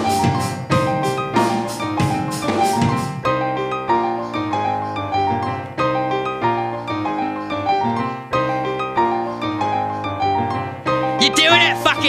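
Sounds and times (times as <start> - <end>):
steady drum beat: 0.0 - 3.2
piano chords: 0.0 - 12.0.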